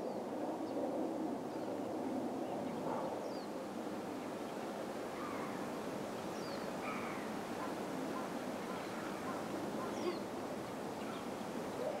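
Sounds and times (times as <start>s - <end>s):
wind: 0.0s - 12.0s
bird calls: 6.4s - 10.3s.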